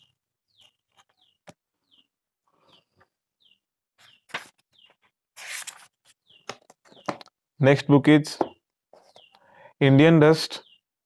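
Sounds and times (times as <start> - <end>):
bird chirping: 0.0 - 5.1, 6.2 - 10.9
book pages turning: 4.2 - 4.7, 5.4 - 6.8.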